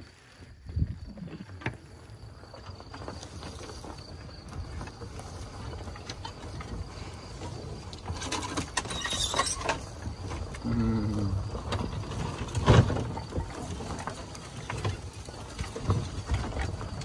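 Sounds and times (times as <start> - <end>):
vehicle rumbling over rough ground: 0.0 - 17.0
rattles and knocks: 2.5 - 10.6, 11.4 - 17.0.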